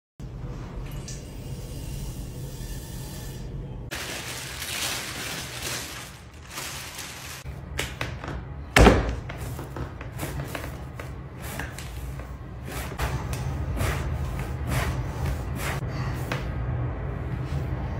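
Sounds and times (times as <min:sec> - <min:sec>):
plastic wrapping rustling: 0:03.9 - 0:07.5.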